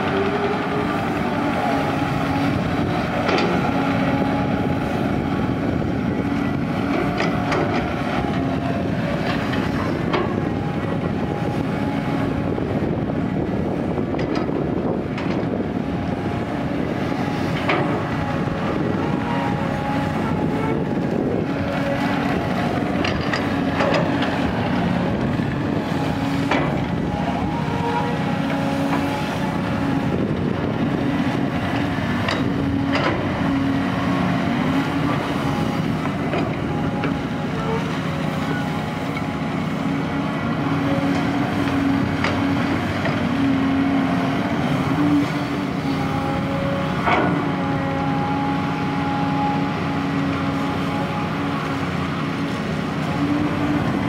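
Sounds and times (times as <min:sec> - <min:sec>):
excavator diesel engine droning: 0:00.0 - 0:54.0
excavator bucket clanks: 0:22.8 - 0:24.3, 0:26.4 - 0:26.9, 0:32.1 - 0:33.3.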